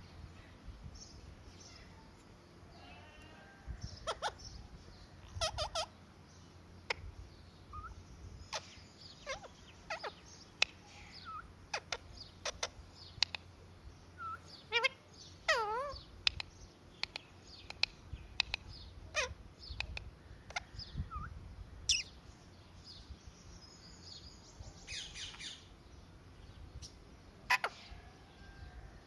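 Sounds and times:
parakeet chirps and squawks: 3.9 - 4.6, 5.2 - 6.0, 7.7 - 13.4, 14.2 - 16.4, 18.4 - 21.3, 21.9 - 22.2, 27.5 - 28.0.

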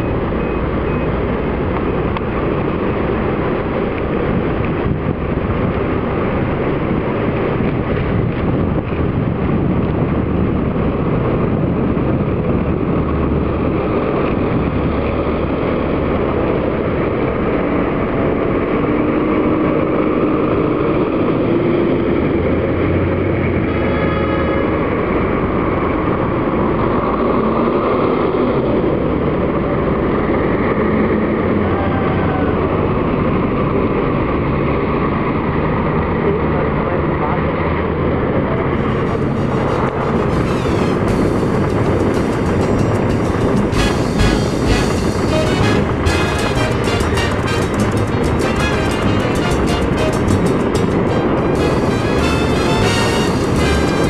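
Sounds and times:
short tone: 0.0 - 1.2, 38.8 - 54.0
bus engines rumbling: 0.0 - 54.0.

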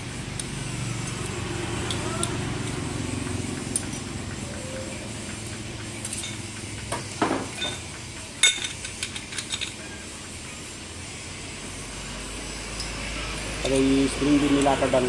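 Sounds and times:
metal clutch plates clinking: 5.3 - 10.0, 13.6 - 15.0.

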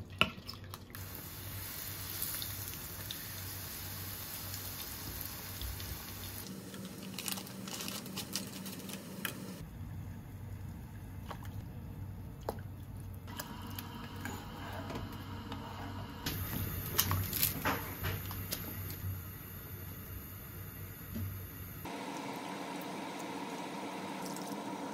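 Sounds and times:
tofu sizzling in a frying pan: 1.0 - 6.4.

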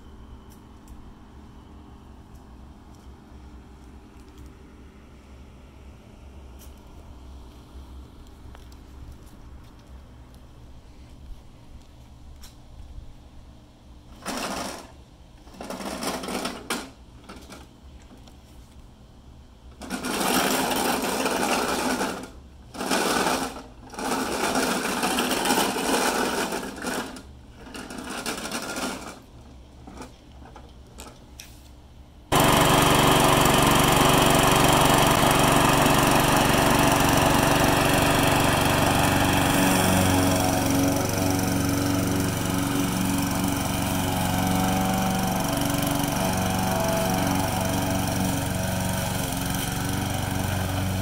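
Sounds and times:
petrol mower engine running: 19.8 - 29.1, 32.3 - 51.0
mower deck rattling: 32.4 - 51.0.

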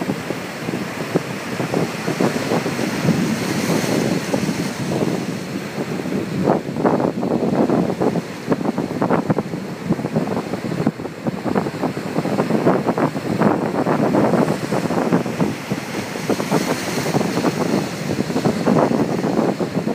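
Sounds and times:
ocean surf breaking: 0.0 - 19.9
wind buffeting microphone: 0.0 - 19.9.

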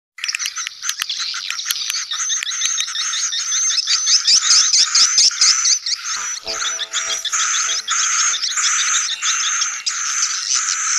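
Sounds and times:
low steady tone: 6.1 - 9.2.

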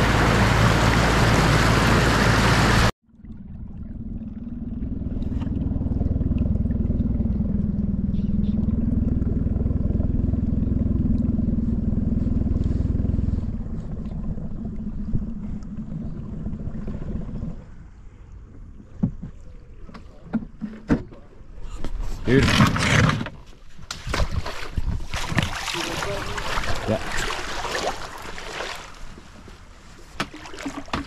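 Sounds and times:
small outboard motor running: 0.0 - 17.6.

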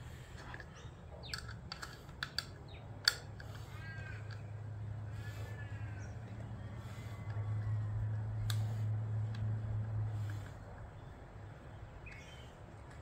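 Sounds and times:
low steady hum: 0.0 - 13.0
screwdriver clicks and taps: 1.2 - 3.6.

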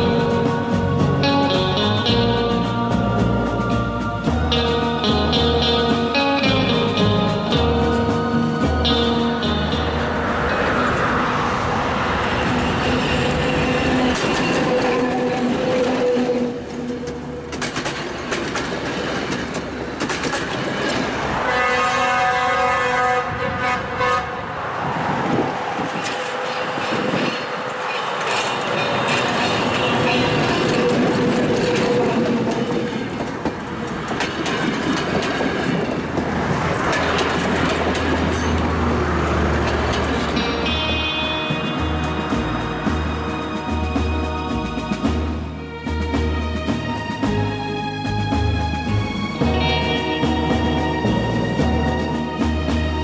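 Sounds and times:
diesel locomotive engine running: 0.0 - 53.0
locomotive horn: 9.0 - 17.6, 21.3 - 24.8, 28.4 - 32.9
train wheels clacking over rail joints: 11.9 - 21.6, 25.5 - 43.3.

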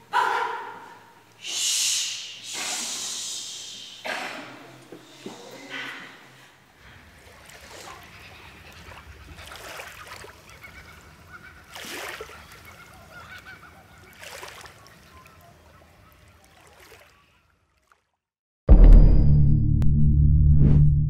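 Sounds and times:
rushing swells of noise: 1.4 - 4.1
low hum: 18.7 - 21.0.

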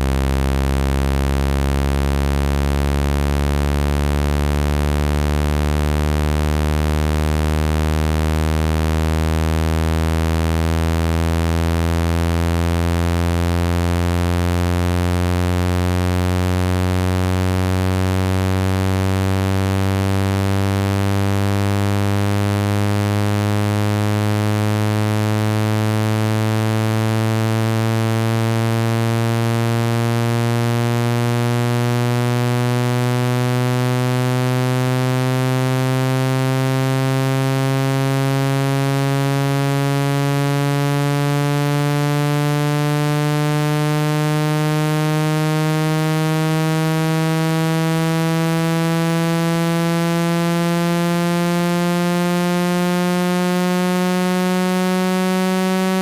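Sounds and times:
buzzy rising tone from phone speaker: 43.1 - 56.0.

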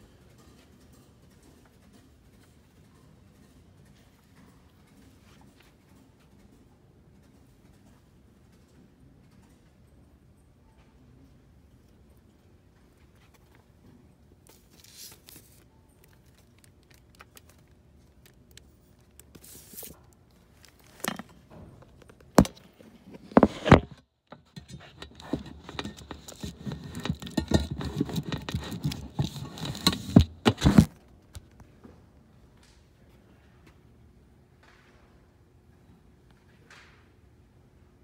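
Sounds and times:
rustling and scraping against fabric: 14.5 - 15.7, 19.4 - 21.2, 22.6 - 30.9.

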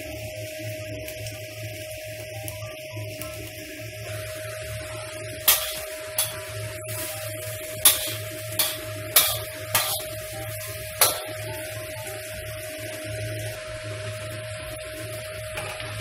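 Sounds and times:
food sizzling: 0.0 - 16.0
metal spatula clanking on wok: 5.5 - 6.5, 7.8 - 10.1, 11.0 - 11.5.

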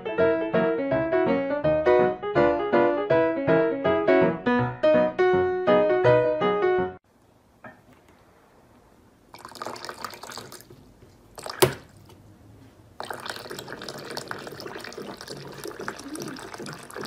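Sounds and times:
water splashing from tap: 9.3 - 12.2, 13.0 - 17.0.

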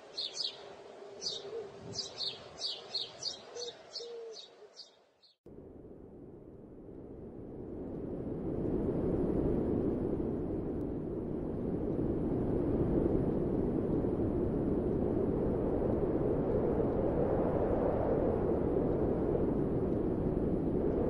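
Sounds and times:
steady rushing noise: 5.5 - 21.0.

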